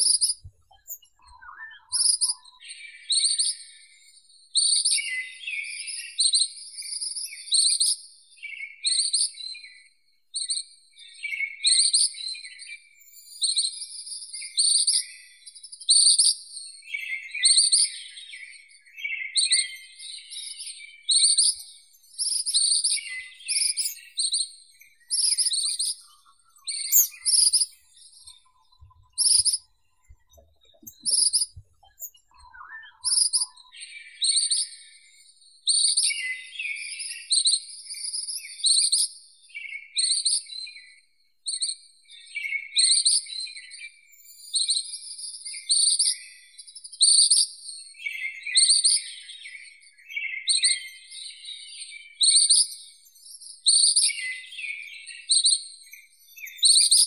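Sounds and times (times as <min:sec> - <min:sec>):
bird trilling call: 0:26.7 - 0:27.8, 0:30.3 - 0:33.5.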